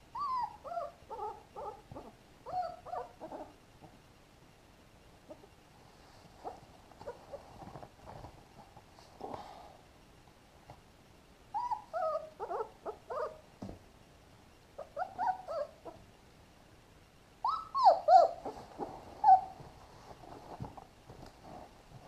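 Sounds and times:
puppies whimpering and squealing: 0.1s - 3.6s, 11.6s - 13.4s, 14.8s - 16.0s, 17.4s - 19.6s.

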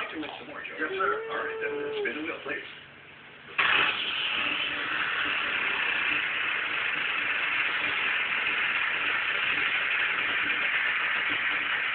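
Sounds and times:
static hiss: 3.5s - 11.9s.

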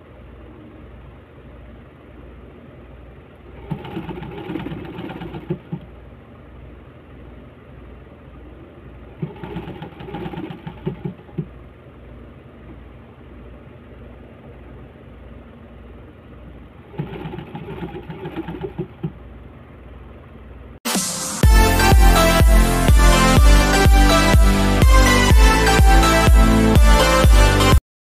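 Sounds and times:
steady low hum: 0.0s - 27.8s
sewing machine stitching clatter: 3.6s - 5.9s, 9.2s - 11.5s, 16.9s - 19.2s.

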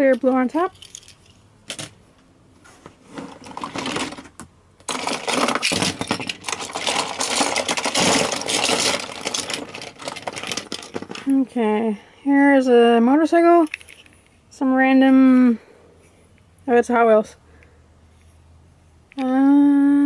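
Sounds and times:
metal toy cars clattering: 0.0s - 2.0s, 3.1s - 11.3s.

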